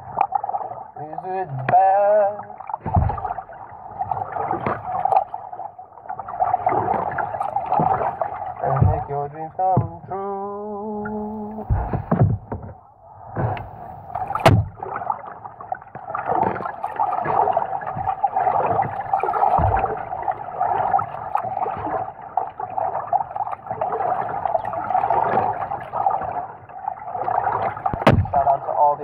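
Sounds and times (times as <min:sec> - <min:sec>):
kayak paddle splashing: 0:00.0 - 0:29.0
water washing along hull: 0:00.0 - 0:29.0
sharp knocks: 0:02.8 - 0:03.4, 0:08.7 - 0:09.1, 0:11.6 - 0:12.8, 0:14.3 - 0:14.8, 0:19.4 - 0:20.0, 0:27.9 - 0:28.5.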